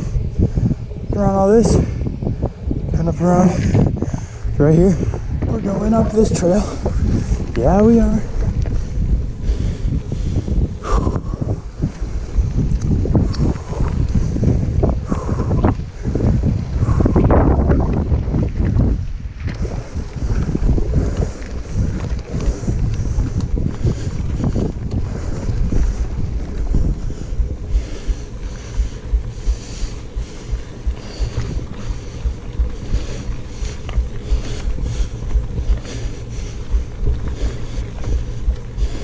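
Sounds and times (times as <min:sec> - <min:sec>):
wind buffeting microphone: 0:00.0 - 0:39.0
bike clicks and rattles: 0:11.4 - 0:16.4, 0:17.0 - 0:39.0.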